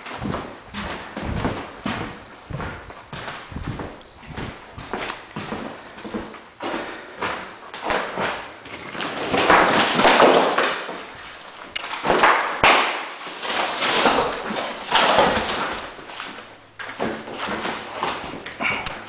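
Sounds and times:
drywall pieces scraping and rustling: 0.0 - 18.6.

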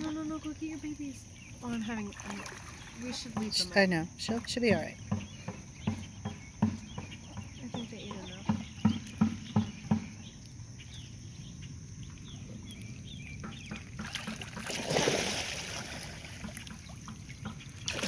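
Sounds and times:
water lapping at dock: 0.0 - 18.0
rushing water splash: 14.0 - 16.8, 17.8 - 18.0.

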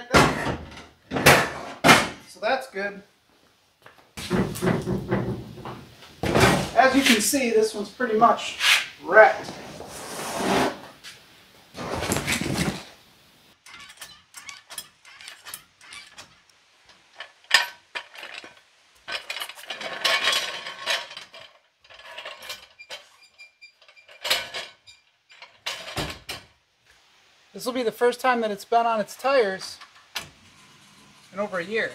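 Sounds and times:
floor jack clicking and clanking: 4.2 - 7.2, 11.8 - 12.9, 17.0 - 23.1
carpet rustling and flopping: 9.4 - 13.0.

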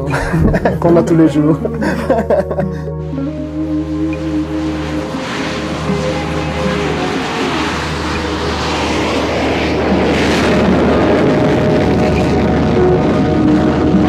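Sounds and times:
jet fighter afterburner roar: 3.0 - 14.0.

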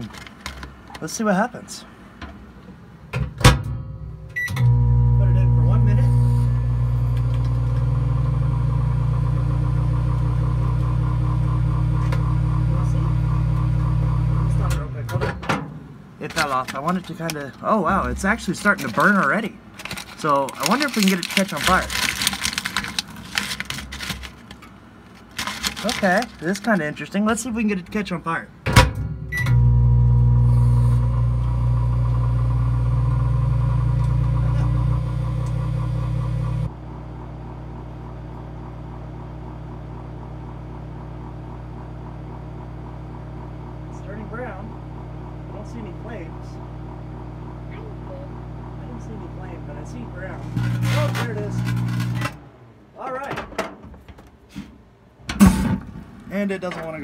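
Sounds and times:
microwave oven humming: 2.0 - 16.2, 28.7 - 52.7
microwave beep: 4.3 - 14.7, 29.2 - 31.2.

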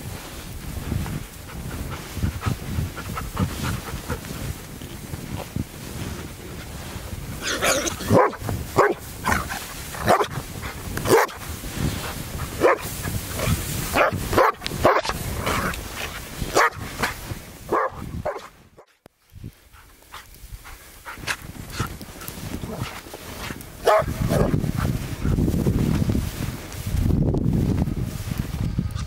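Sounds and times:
dog barking: 8.0 - 10.4, 11.1 - 11.4, 12.6 - 15.7, 16.5 - 16.9, 17.7 - 19.0, 23.8 - 24.6.

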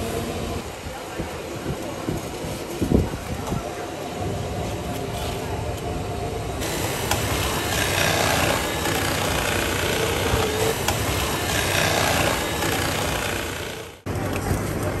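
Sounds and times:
food processor motor whirring: 6.6 - 14.1.

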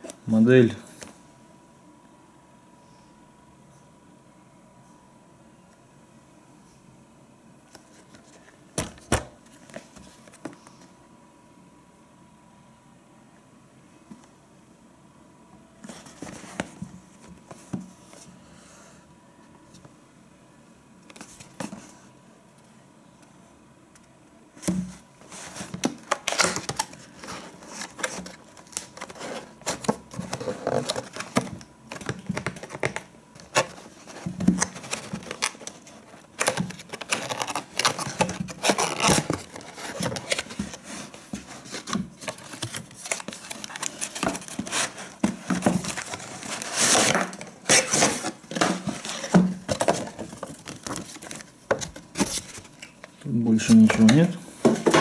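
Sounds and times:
plastic bag rustling: 25.0 - 53.0.

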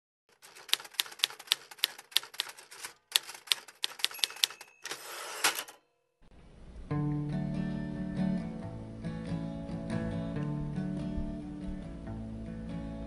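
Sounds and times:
typewriter keystrokes: 0.3 - 5.8
typewriter carriage sliding: 0.4 - 5.8.

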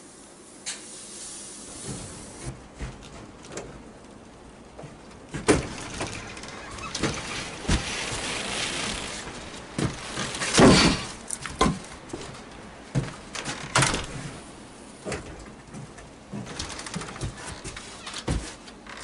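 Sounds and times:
wood pieces knocking: 5.3 - 12.2
door banging shut: 5.4 - 7.9
firewood crashing into wooden box: 9.8 - 11.8.

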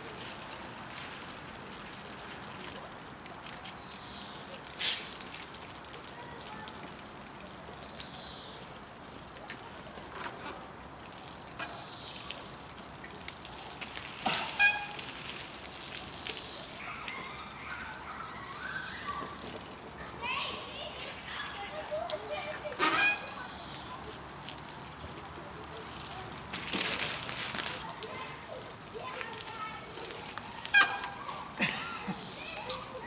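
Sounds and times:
outdoor hiss: 0.0 - 33.0
bike landing on gravel: 26.5 - 27.8.

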